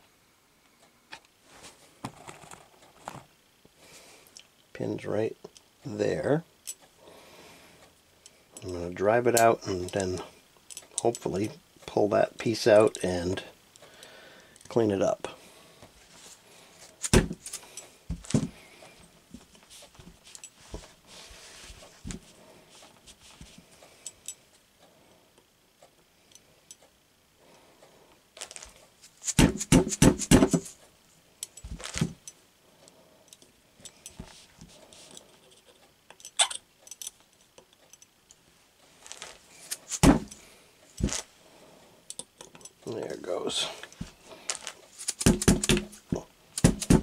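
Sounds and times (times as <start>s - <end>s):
hammer tapping a pin punch: 45.2s - 46.0s, 46.6s - 47.0s.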